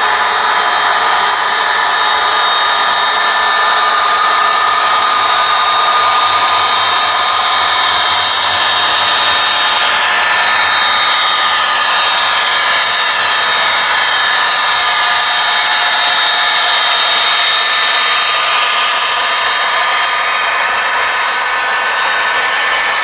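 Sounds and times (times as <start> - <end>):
high whine: 0.0 - 23.0
model train motors whirring: 0.0 - 23.0
wheels rolling on rails: 0.0 - 23.0.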